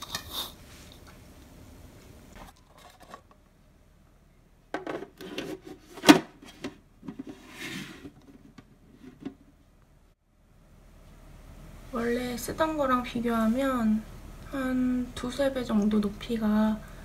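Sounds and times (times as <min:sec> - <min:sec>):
plastic rubbing scrapes: 0:05.0 - 0:09.5.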